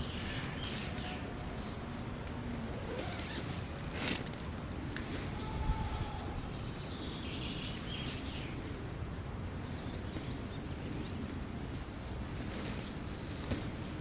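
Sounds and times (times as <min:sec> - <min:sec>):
wind noise on microphone: 0:00.0 - 0:14.0
rustles of gear handled: 0:00.6 - 0:05.4, 0:09.8 - 0:14.0.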